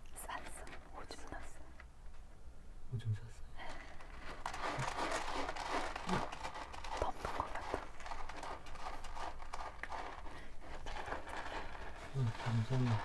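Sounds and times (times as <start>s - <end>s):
kitten scratching litter: 3.6s - 13.0s.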